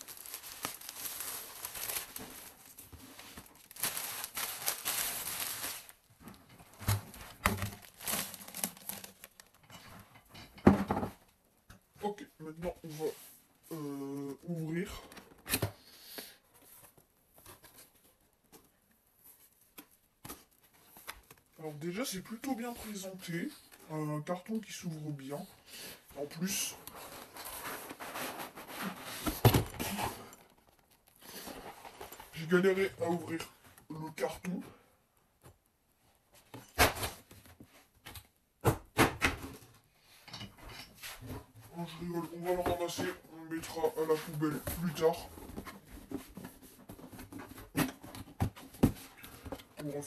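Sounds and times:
cardboard rustling: 0.0 - 9.6, 26.3 - 32.9, 41.2 - 50.0
cardboard carton knocks and thumps: 29.2 - 30.0, 45.6 - 49.2.

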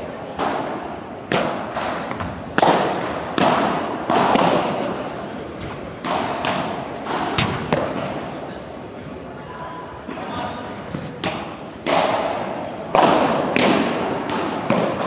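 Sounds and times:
padel ball hits echoing: 0.4 - 5.0, 6.0 - 8.2, 11.2 - 15.0.

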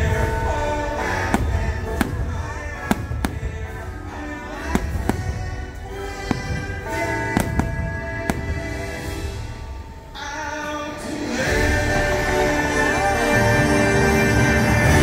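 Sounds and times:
soundtrack music with held tones: 0.0 - 15.0
firework shells bursting: 1.1 - 10.0.

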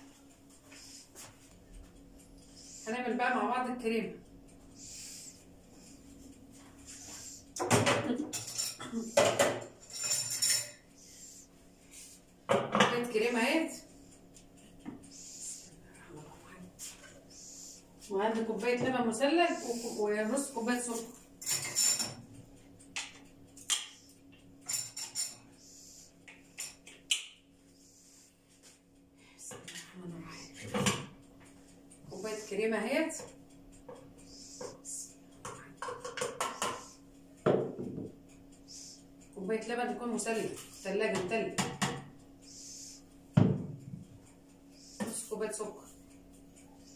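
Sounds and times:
dishes and utensils clattering: 7.6 - 10.8, 21.4 - 22.3, 24.6 - 25.4, 30.6 - 31.2, 35.5 - 36.9
kitchenware clinking: 7.6 - 10.8, 21.4 - 22.2.

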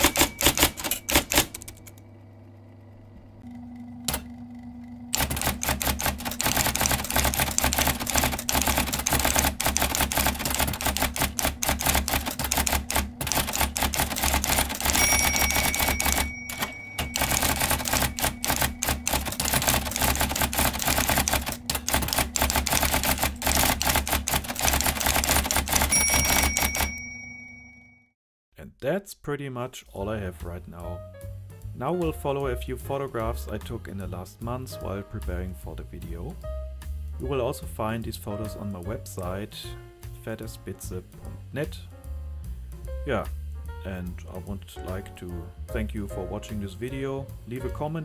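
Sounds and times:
short ringing tone: 0.0 - 1.9, 14.8 - 19.3, 25.9 - 28.2
typewriter keystroke clicks: 0.0 - 2.0, 5.1 - 27.1
typewriter motor hum: 0.0 - 27.1.

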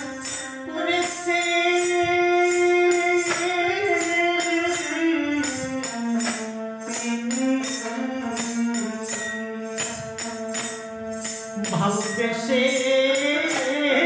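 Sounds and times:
hand cymbals clashing: 0.0 - 14.0
keyboard melody: 0.0 - 14.0.

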